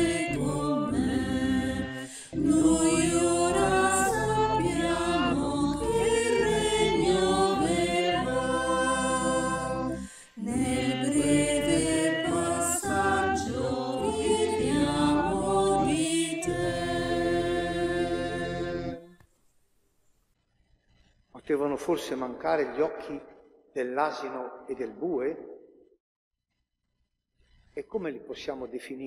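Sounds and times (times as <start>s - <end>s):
choir singing: 0.0s - 19.2s.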